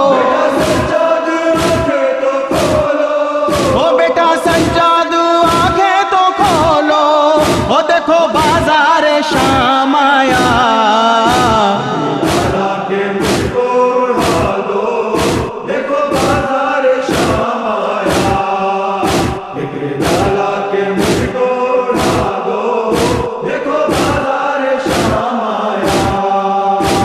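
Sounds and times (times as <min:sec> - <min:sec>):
man reciting a wavering note: 0:00.0 - 0:16.4
men chanting: 0:00.0 - 0:27.0
chest-beating: 0:07.4 - 0:07.8, 0:11.3 - 0:13.6, 0:15.2 - 0:15.5, 0:18.1 - 0:18.4, 0:19.0 - 0:20.4, 0:21.0 - 0:21.3.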